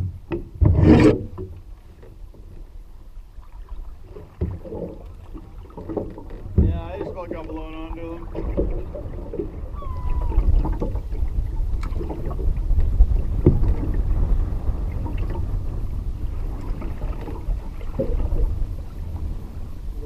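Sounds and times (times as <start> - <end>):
water lapping against canoe: 0.0 - 20.0
paddle knocks: 4.0 - 14.0
wind buffeting microphone: 4.4 - 20.0.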